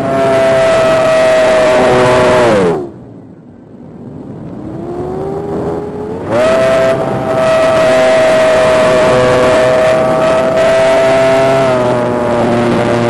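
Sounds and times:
electric motor and propeller whine: 0.0s - 3.0s, 4.3s - 13.0s.

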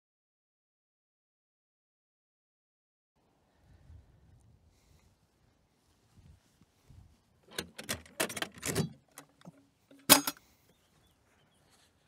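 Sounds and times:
metal lid clanking: 7.5s - 10.4s
metallic clicks and rattles: 7.5s - 10.4s.

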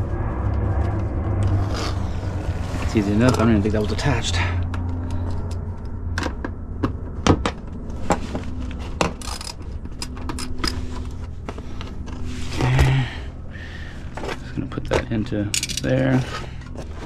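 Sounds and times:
steady low hum: 0.0s - 17.0s
ratchet and bolts clinking: 15.5s - 16.0s.

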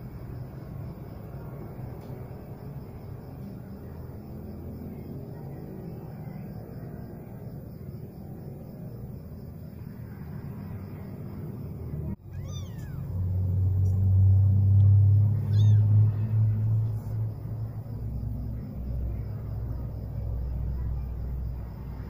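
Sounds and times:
steady low rumble: 0.0s - 22.0s
kitten mewing: 12.2s - 13.2s, 15.4s - 16.0s.

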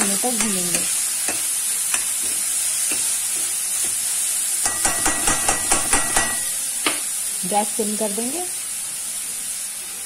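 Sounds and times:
metal spoon scraping a pan: 0.0s - 4.0s
onions sizzling in oil: 0.0s - 10.0s.

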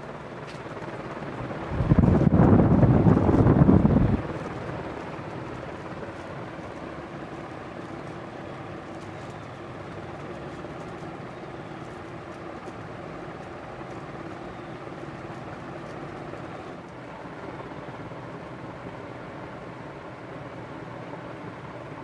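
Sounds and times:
ceiling fan air whoosh: 0.0s - 22.0s
low motor hum: 0.7s - 16.8s.

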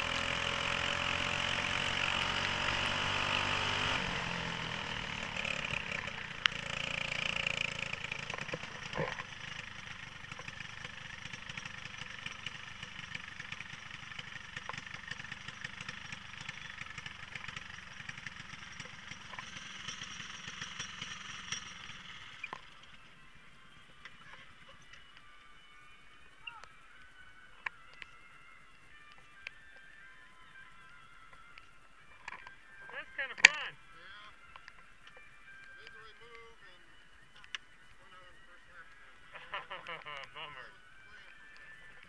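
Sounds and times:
kart engine running at low revs: 0.0s - 23.4s.

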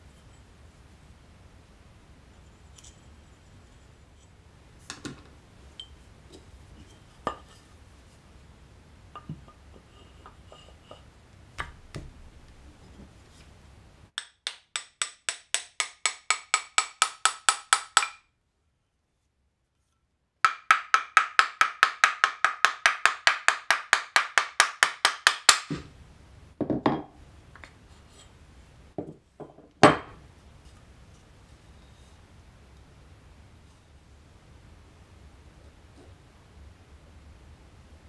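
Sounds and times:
hammer tapping on wooden block: 14.2s - 18.3s, 20.5s - 25.9s
knocks of objects set on bench: 26.6s - 27.7s, 29.0s - 30.2s.

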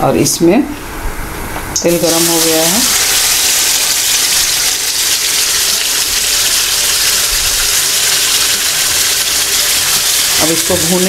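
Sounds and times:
paste sizzling in hot oil: 2.0s - 11.0s.

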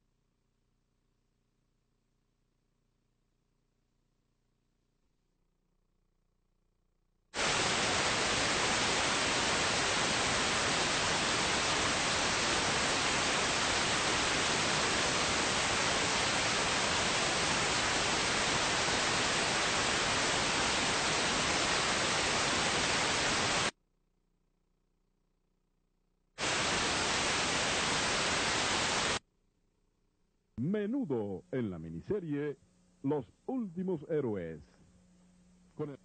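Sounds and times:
static hiss: 7.4s - 23.8s, 26.4s - 29.2s.

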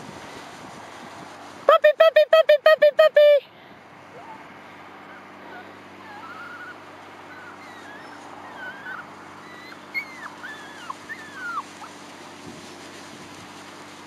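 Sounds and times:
puppies whimpering and yipping: 4.1s - 12.1s.

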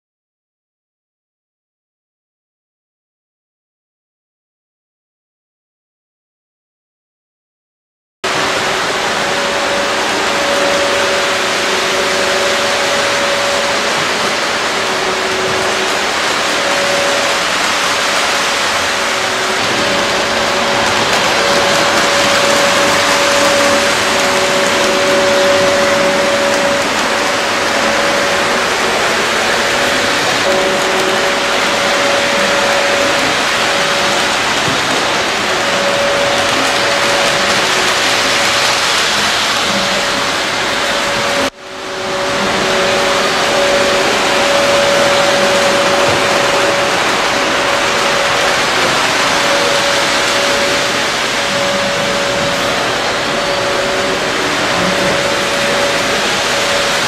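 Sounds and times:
model train running on track: 8.3s - 57.0s
motor hum: 8.3s - 57.0s.

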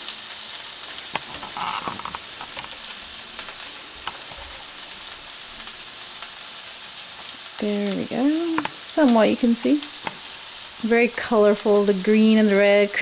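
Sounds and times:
vegetables sizzling in frying pan: 0.0s - 13.0s
small pops and crackles: 0.8s - 6.4s, 8.4s - 9.2s, 9.8s - 10.8s.

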